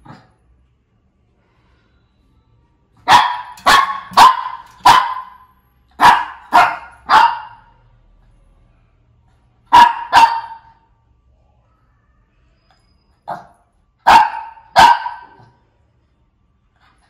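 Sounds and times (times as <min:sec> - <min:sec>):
small dog barking: 0:03.0 - 0:05.4, 0:06.0 - 0:07.7, 0:09.7 - 0:10.8, 0:13.3 - 0:15.5.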